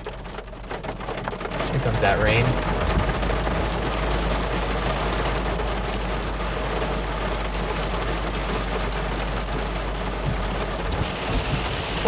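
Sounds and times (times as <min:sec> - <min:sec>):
rain on car roof: 0:00.0 - 0:12.0
low hum: 0:01.8 - 0:05.9.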